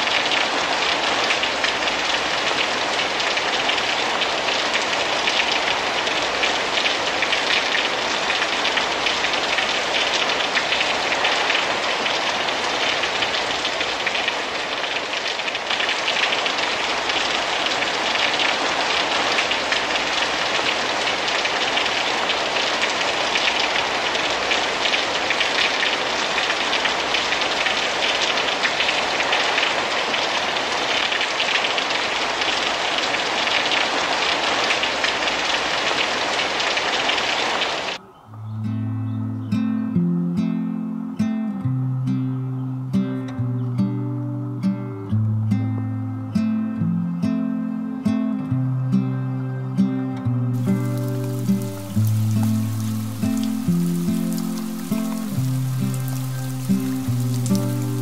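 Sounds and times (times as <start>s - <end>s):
rain falling on grass: 0.0s - 38.0s, 50.5s - 58.0s
rain splashing into puddle: 0.0s - 38.0s, 50.5s - 58.0s.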